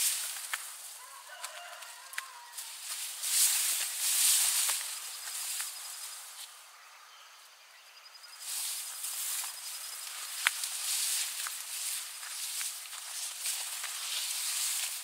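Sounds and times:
rustling hiss: 0.0 - 6.7, 8.2 - 15.0
cricket trilling: 0.0 - 15.0.

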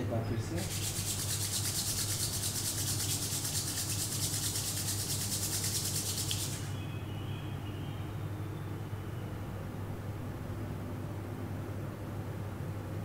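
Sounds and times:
palms rubbing together: 0.5 - 6.7.

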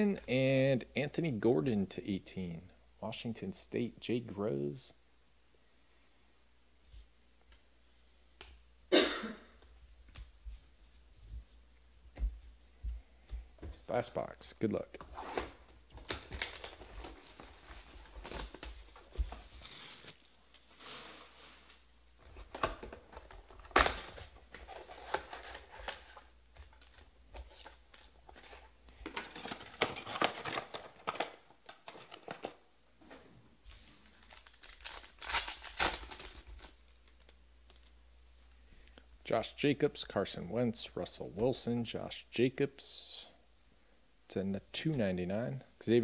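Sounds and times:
foil wrappers crinkling and tearing: 15.9 - 32.4, 33.7 - 37.9.

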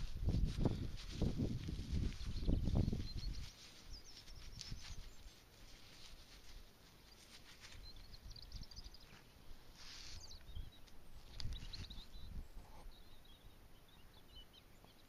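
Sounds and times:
gloved hands rustling: 0.0 - 8.4
small birds twittering: 0.6 - 15.0.

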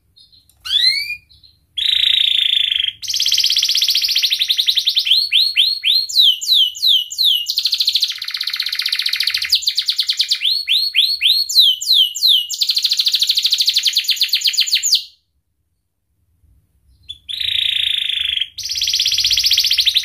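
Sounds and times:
canary singing: 0.1 - 15.2, 16.9 - 20.0.

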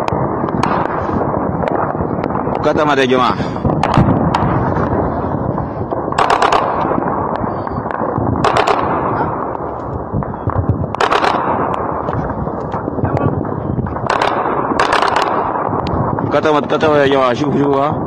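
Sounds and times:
single gunshots: 0.0 - 16.4
distant automatic gunfire: 0.0 - 16.7
steady background noise: 0.0 - 18.0.

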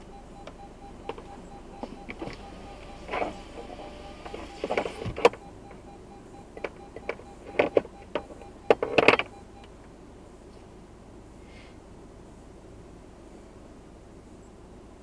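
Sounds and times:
faint repeating beep: 0.0 - 9.7
clicks and rustles in car: 0.4 - 5.9, 6.5 - 9.4.

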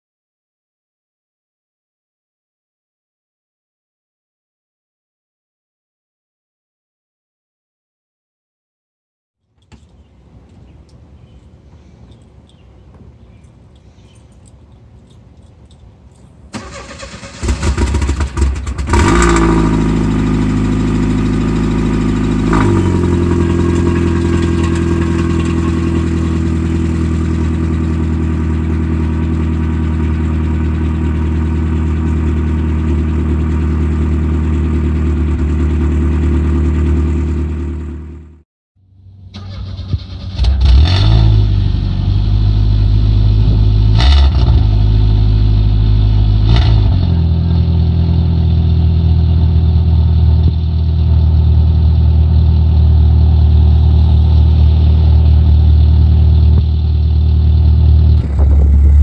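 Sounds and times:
car engine starting and idling: 13.2 - 59.0
engine revving: 16.6 - 38.3, 39.3 - 50.6, 51.3 - 59.0.

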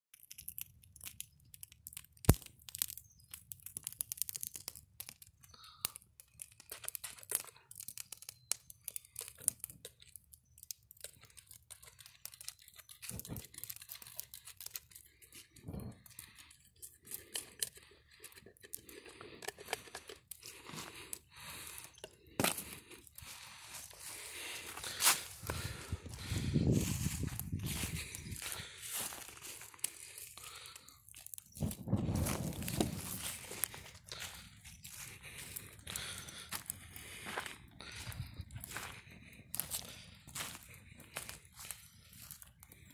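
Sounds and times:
dry leaves crackling: 4.4 - 15.6, 22.5 - 42.8.

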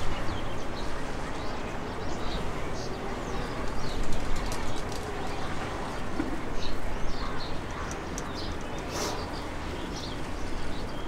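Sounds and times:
birds calling: 6.0 - 11.0.

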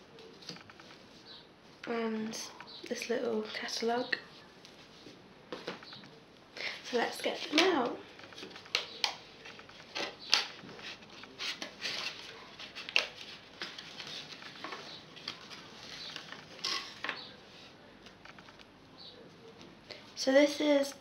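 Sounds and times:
soft rustling: 0.1 - 8.7.

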